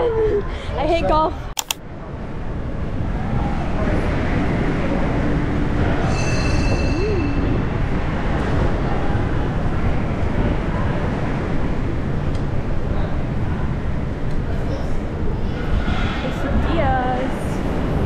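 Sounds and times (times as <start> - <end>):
wind buffeting microphone: 7.0 - 18.0.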